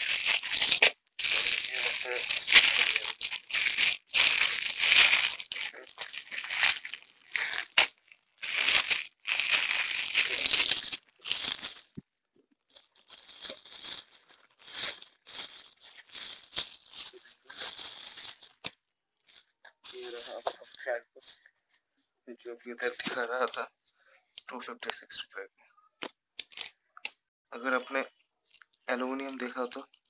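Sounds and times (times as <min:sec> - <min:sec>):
plastic packaging crinkling: 0:00.0 - 0:12.0, 0:12.7 - 0:18.7, 0:19.3 - 0:21.4.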